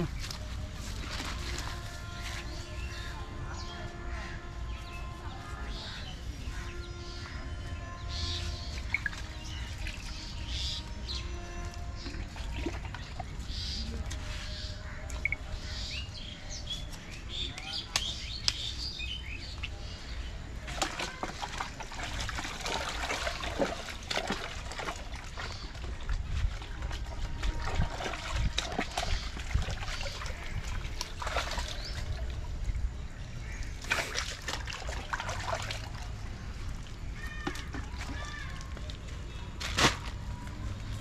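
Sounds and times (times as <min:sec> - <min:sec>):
water splashing in a plastic bucket: 0:00.0 - 0:03.1, 0:08.4 - 0:15.7, 0:19.4 - 0:41.0.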